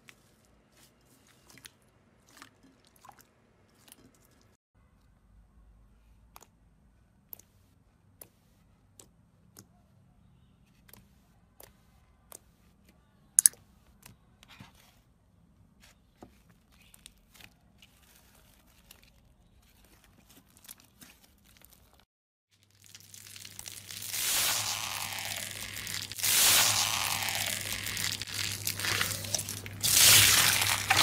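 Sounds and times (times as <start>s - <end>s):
slime crackling: 22.6s - 31.0s.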